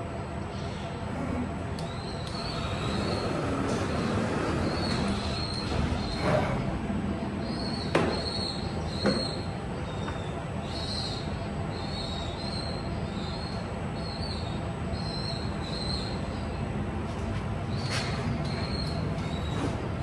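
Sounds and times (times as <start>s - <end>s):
steady machine noise: 0.0s - 9.8s.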